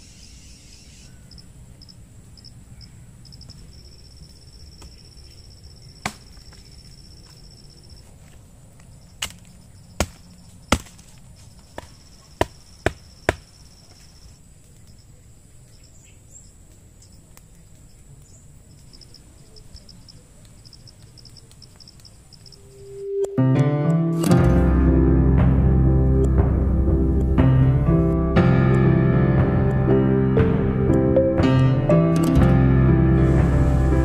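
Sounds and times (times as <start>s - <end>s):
crickets trilling: 0.0s - 23.4s
wood being chopped: 6.0s - 7.4s, 9.2s - 13.5s.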